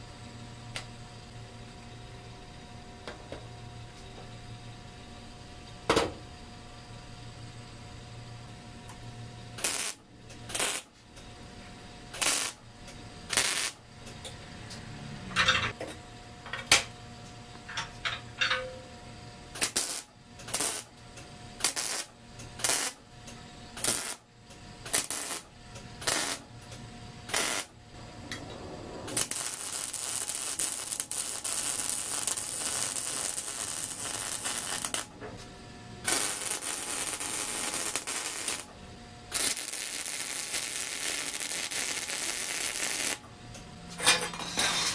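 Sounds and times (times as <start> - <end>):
welding arc crackling and hissing: 9.6 - 10.9, 12.1 - 12.6, 13.2 - 13.8, 19.5 - 21.0, 21.6 - 23.0, 23.8 - 26.5, 27.3 - 35.2, 36.0 - 38.7, 39.3 - 43.2.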